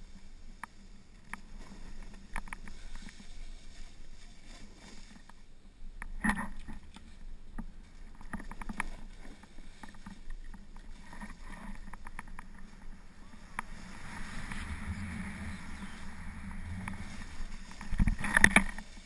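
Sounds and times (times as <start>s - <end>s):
snowboard rushing through powder: 12.9s - 19.0s.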